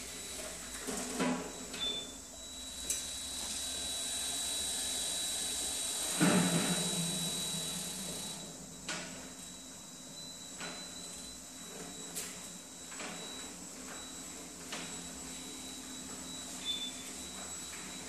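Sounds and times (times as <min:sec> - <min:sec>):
high motor whine: 0:02.3 - 0:08.8.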